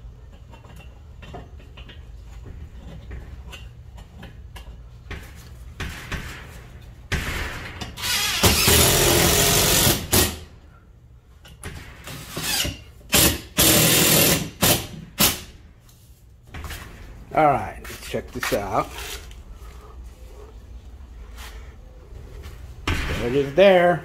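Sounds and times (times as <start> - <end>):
cordless drill driving screws: 8.0 - 10.3.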